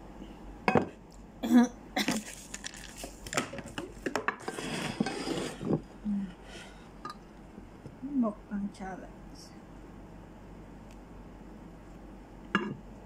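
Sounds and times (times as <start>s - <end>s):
dishes being moved: 2.7s - 5.9s.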